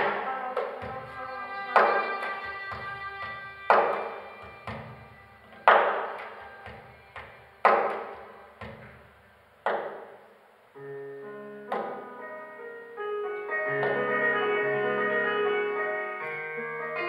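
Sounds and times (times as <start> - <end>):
live instrumental ensemble music: 0.0 - 8.8, 12.0 - 17.0
loud ringing keyboard chords: 10.8 - 17.0.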